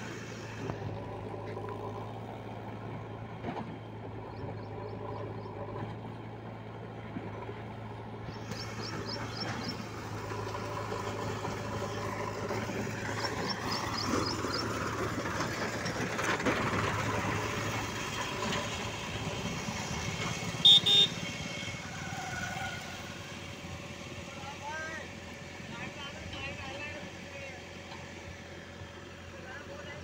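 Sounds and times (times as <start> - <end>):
tractor diesel engine under load: 0.0 - 30.0
short horn beeps: 20.6 - 21.4.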